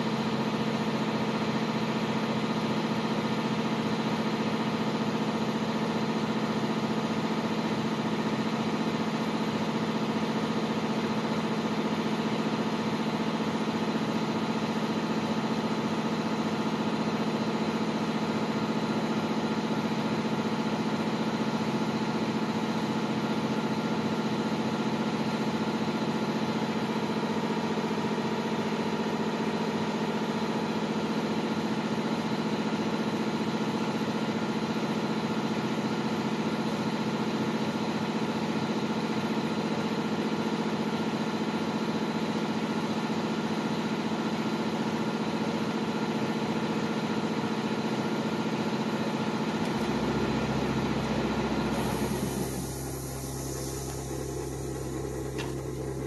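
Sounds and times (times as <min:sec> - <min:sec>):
foam cutter motor humming: 0:49.3 - 0:56.0.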